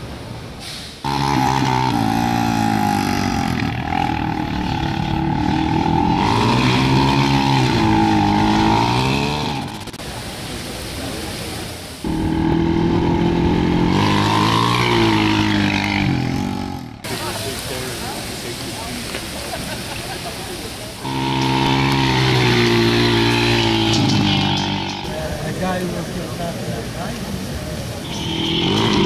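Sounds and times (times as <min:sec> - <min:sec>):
quad engine revving: 0:01.0 - 0:10.0, 0:12.0 - 0:17.2, 0:21.0 - 0:25.7, 0:28.0 - 0:29.0.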